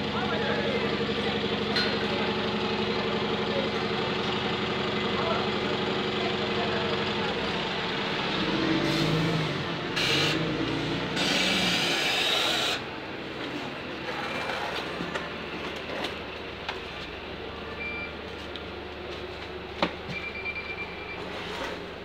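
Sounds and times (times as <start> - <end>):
bus engine idling: 0.0 - 22.0.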